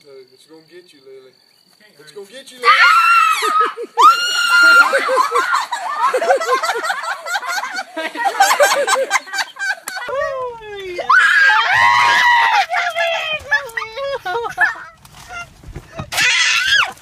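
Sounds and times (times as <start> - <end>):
girl screaming: 2.6 - 5.6, 11.1 - 14.8, 16.1 - 17.0
laughter: 3.4 - 10.2, 12.4 - 15.0.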